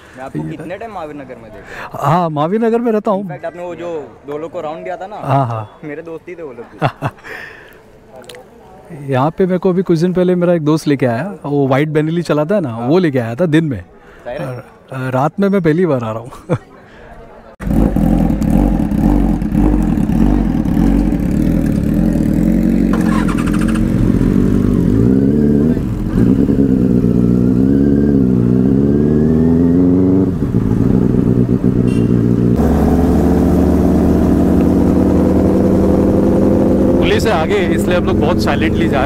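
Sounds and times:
motorcycle engine at low revs: 0:17.6 - 0:39.0.

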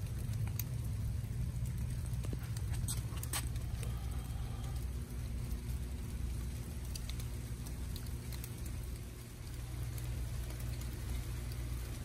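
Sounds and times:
raindrops ticking: 0:00.0 - 0:12.0
steady low rumble: 0:00.0 - 0:12.0.

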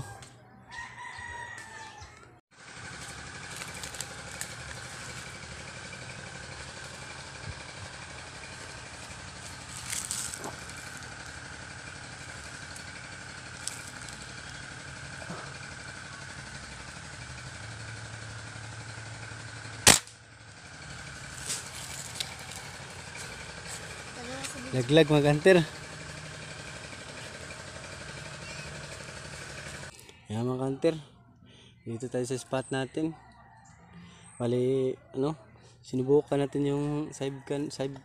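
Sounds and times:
outdoor background hum: 0:00.0 - 0:38.0
rifle shot: 0:19.8 - 0:20.2.

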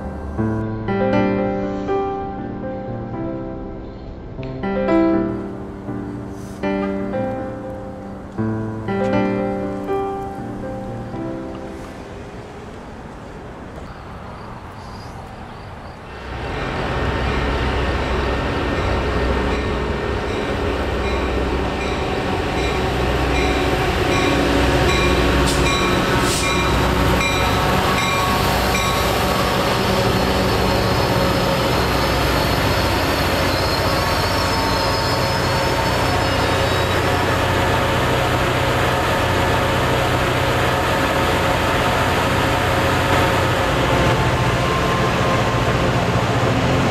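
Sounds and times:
train rumbling on rails: 0:00.0 - 0:02.6, 0:04.0 - 0:46.9
squealing train wheels: 0:13.8 - 0:46.9.

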